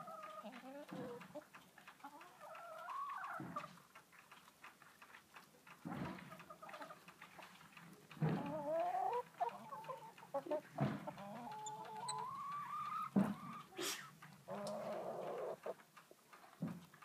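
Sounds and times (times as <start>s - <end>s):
hens calling: 0.0s - 3.8s, 8.2s - 15.8s.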